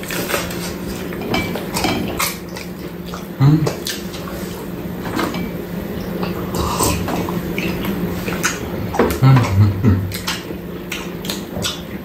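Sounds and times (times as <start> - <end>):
low background hum: 0.0 - 12.0
low vocal murmur: 3.4 - 3.8, 8.6 - 10.5
chewing and lip-smacking: 5.9 - 12.0.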